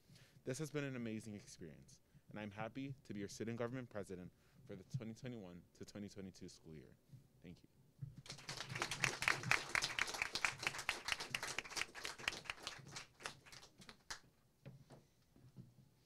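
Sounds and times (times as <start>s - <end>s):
audience applauding: 8.2s - 14.2s.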